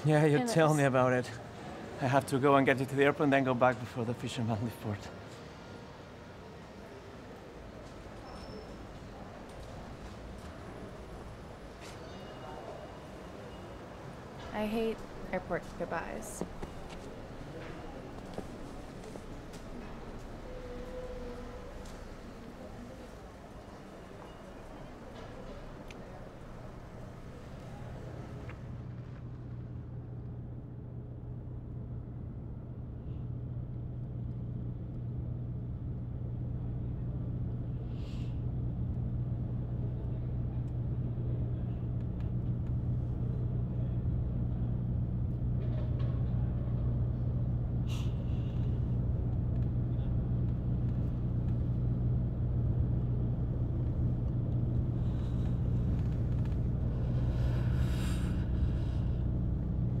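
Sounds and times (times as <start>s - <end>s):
engine and road drone in car: 14.2s - 60.0s.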